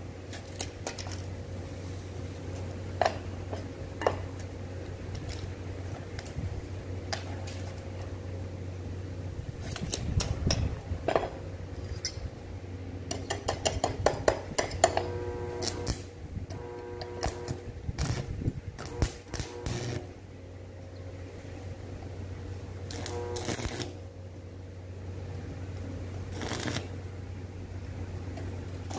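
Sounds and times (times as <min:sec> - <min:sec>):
arc welding crackling: 0:00.0 - 0:08.2, 0:09.5 - 0:10.9, 0:13.1 - 0:20.3, 0:22.6 - 0:27.2
low hum: 0:14.5 - 0:28.9.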